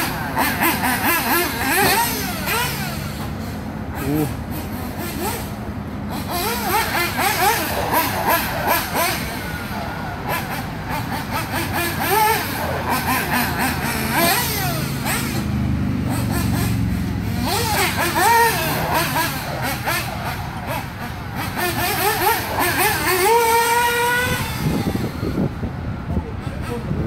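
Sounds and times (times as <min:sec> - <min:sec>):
rc car engine revving: 0:00.0 - 0:27.0.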